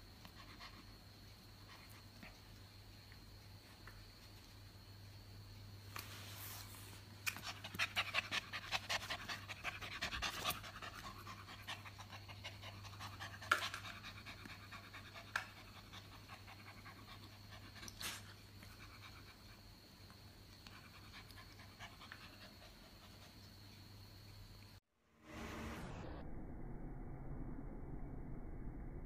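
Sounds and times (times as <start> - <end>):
puppy panting rapidly: 7.5 - 17.8.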